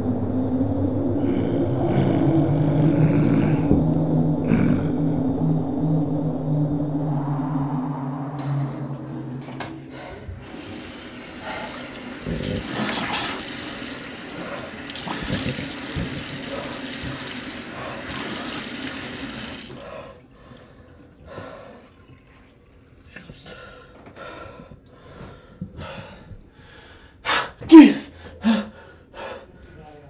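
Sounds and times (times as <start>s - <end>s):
water splashing on face: 10.5s - 19.8s.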